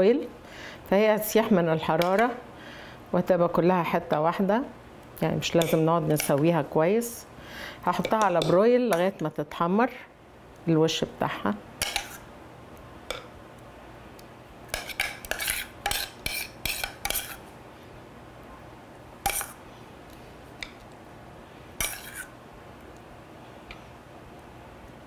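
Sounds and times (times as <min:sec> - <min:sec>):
metal spoon scraping a pot: 0:14.7 - 0:17.4, 0:19.3 - 0:19.6, 0:21.8 - 0:22.3.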